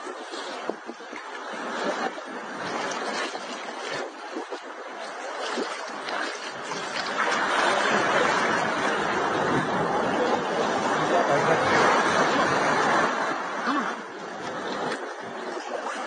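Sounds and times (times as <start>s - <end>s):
sea water sloshing and splashing: 0.0s - 16.0s.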